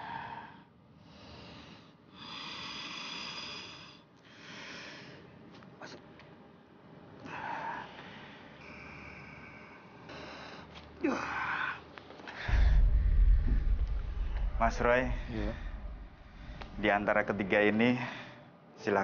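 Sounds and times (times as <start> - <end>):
person breathing heavily: 7.2 - 16.8.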